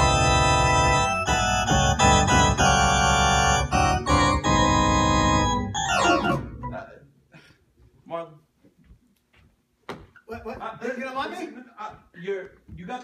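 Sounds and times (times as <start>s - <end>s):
organ chords on synthesizer: 0.0s - 6.8s
keyboard glissando: 0.0s - 6.9s.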